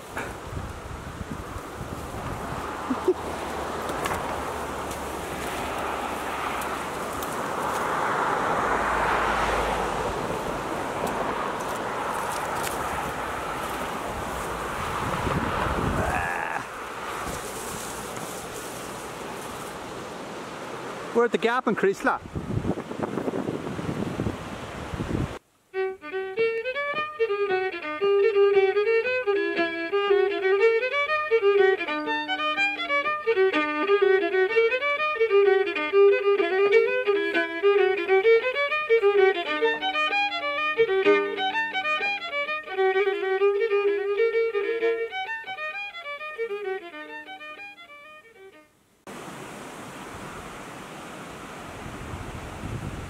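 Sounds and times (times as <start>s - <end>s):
wind buffeting microphone: 0.0s - 8.6s, 9.2s - 18.2s, 22.2s - 25.4s, 51.6s - 53.0s
solo fiddle playing fast notes: 25.7s - 48.7s.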